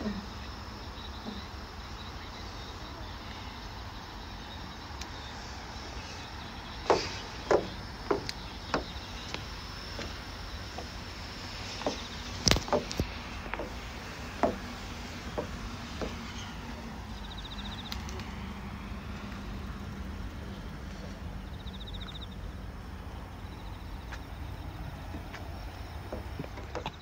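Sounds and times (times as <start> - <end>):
faint outdoor background: 0.0 - 27.0
footsteps: 5.5 - 18.4.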